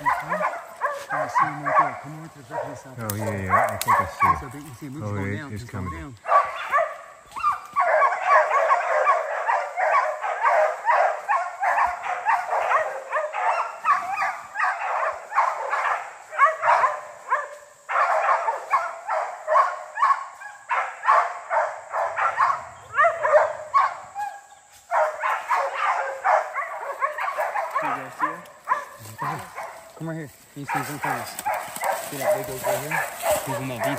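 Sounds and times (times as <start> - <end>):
dogs barking rapidly: 0.0 - 33.9.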